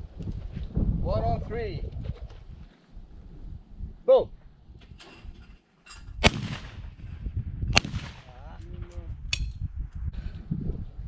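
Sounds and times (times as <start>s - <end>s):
shotgun shots: 6.2s - 7.0s, 7.7s - 8.4s.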